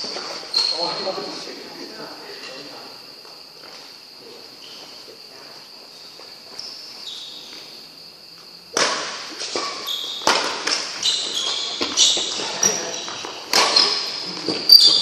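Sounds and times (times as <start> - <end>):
shoes squeaking on court floor: 0.0 - 1.4, 3.2 - 15.0
racket hitting shuttlecock: 8.7 - 12.4, 13.3 - 14.2.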